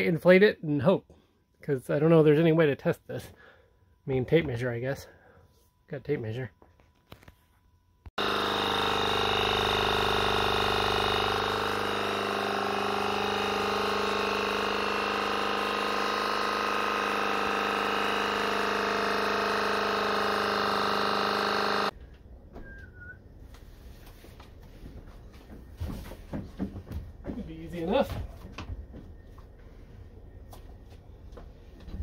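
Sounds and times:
electric pump motor hum: 0:08.1 - 0:22.0.

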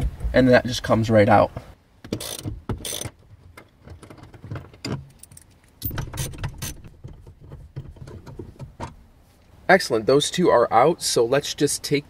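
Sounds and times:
socket ratchet clicking: 0:02.1 - 0:03.2, 0:05.2 - 0:06.9.

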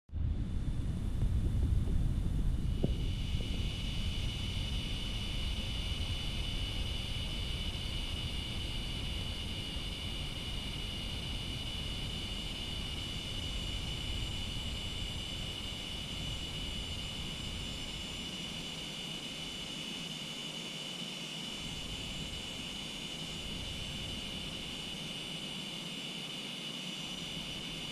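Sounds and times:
jet engines rumbling: 0:00.1 - 0:19.8
cicadas singing: 0:02.4 - 0:27.9.

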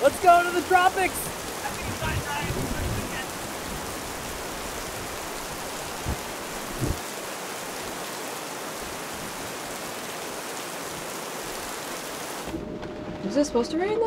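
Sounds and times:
heavy rain hissing: 0:00.0 - 0:12.5
low thumps: 0:05.9 - 0:07.0.

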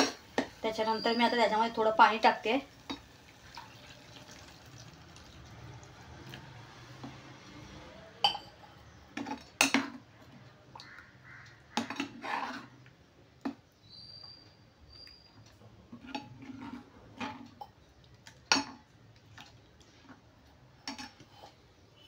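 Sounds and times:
ladle scraping metal pot: 0:11.8 - 0:12.8, 0:15.9 - 0:17.6.

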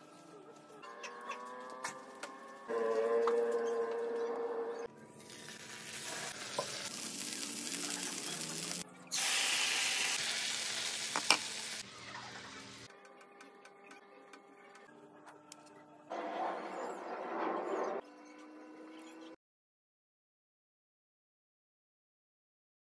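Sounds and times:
chicken sizzling in a frying pan: 0:05.2 - 0:12.9.

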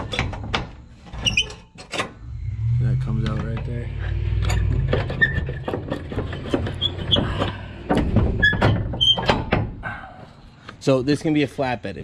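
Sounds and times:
rusty pin squeaking: 0:01.1 - 0:02.6, 0:03.2 - 0:09.5.

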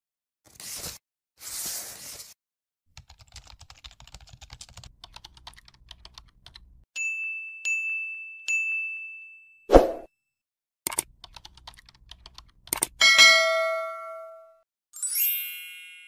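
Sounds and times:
short whoosh: 0:09.7 - 0:10.1.

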